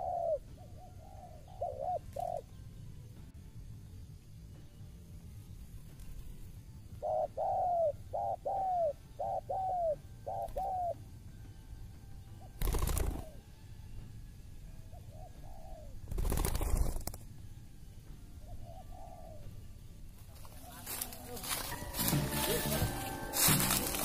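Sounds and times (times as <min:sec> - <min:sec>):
dove cooing: 0:00.0 - 0:02.6, 0:06.9 - 0:11.0, 0:12.4 - 0:13.4, 0:14.9 - 0:17.2, 0:18.4 - 0:19.7.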